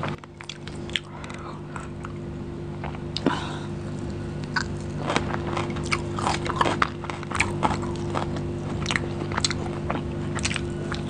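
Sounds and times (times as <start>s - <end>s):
meat tearing and chewing: 0.0s - 1.9s, 4.1s - 11.0s
sticky clicks and crunches: 0.0s - 2.2s, 4.0s - 11.0s
steady low hum: 0.0s - 11.0s.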